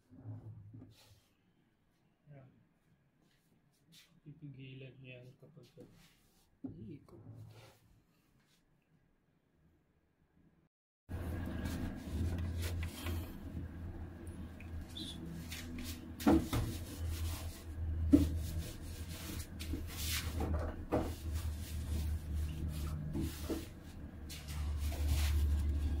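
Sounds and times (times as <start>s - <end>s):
steady low hum: 11.1s - 26.0s.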